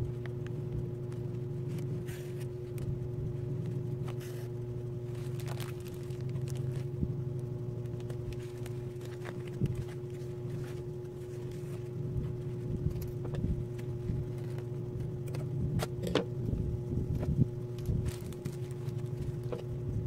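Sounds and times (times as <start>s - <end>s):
low mechanical hum: 0.0s - 20.0s
plastic sack rustling and crackling: 4.0s - 7.1s, 7.8s - 14.8s, 17.2s - 20.0s.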